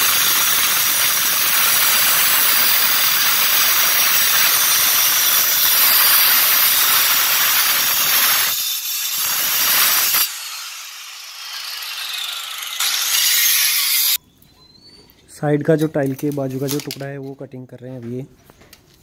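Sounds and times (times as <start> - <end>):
stone cutter grinding whine: 0.0 - 14.2.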